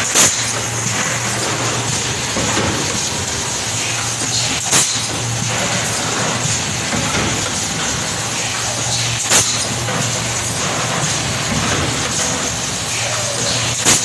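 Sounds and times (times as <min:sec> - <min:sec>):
blow molding machine humming: 0:00.0 - 0:14.0.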